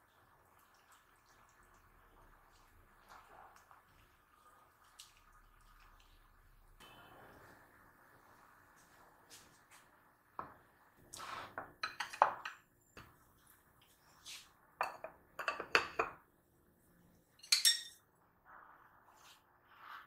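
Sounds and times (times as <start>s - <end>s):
dishes and cutlery clattering: 11.8s - 12.6s, 17.4s - 18.0s.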